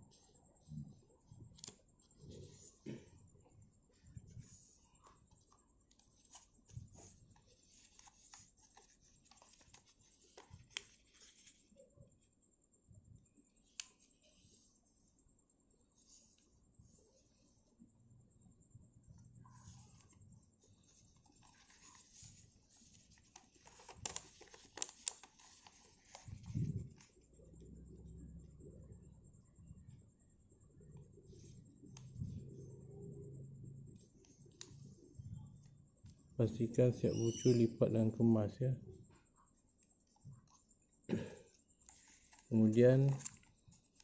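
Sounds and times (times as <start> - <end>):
paper crinkling and folding: 3.9 - 11.8, 19.4 - 27.2, 41.8 - 44.0.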